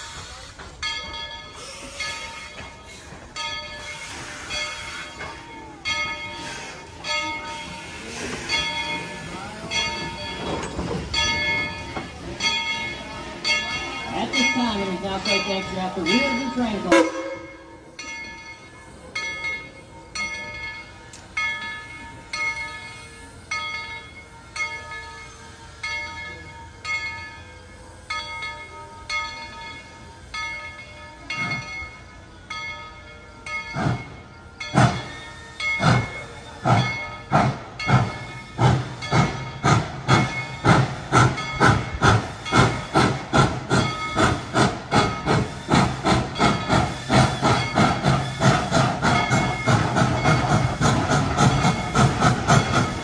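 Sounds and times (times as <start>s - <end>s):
locomotive bell clanging: 0.0s - 53.0s
steam exhaust chuffs: 33.7s - 53.0s.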